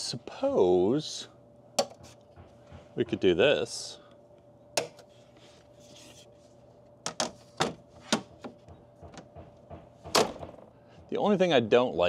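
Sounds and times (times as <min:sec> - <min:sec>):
wooden board clacks and knocks: 0:07.1 - 0:10.6.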